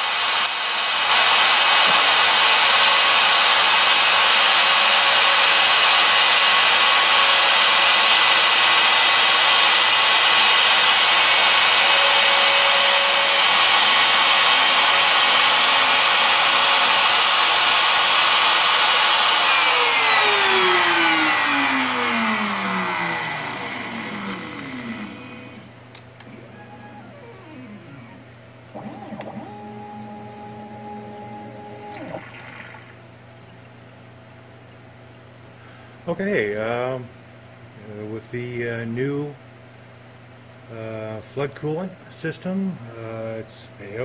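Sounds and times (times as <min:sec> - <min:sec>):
metal cutting noise: 0:00.4 - 0:25.7
motor spinning down: 0:01.1 - 0:33.0
spindle motor whining: 0:10.3 - 0:33.0.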